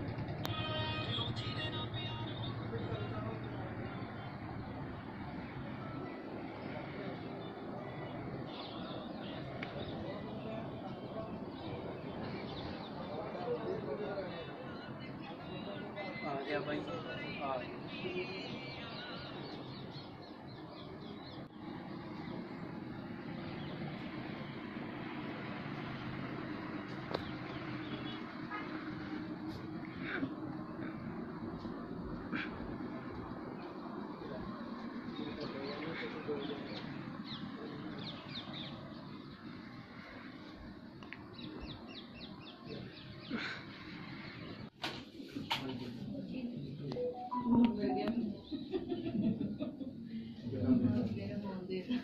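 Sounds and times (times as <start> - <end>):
distant traffic hum: 0.0 - 52.0
small birds chirping: 34.8 - 44.7.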